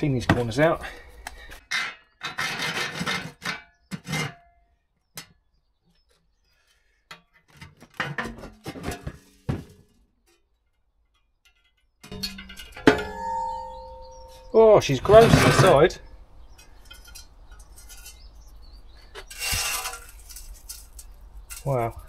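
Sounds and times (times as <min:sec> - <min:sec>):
sheet steel scraping and clanking: 0:01.6 - 0:04.5, 0:07.1 - 0:10.0, 0:11.5 - 0:22.0.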